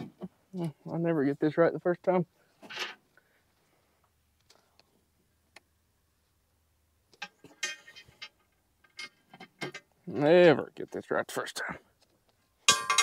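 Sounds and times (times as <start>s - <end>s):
metal tailgate clinking: 12.7s - 13.0s.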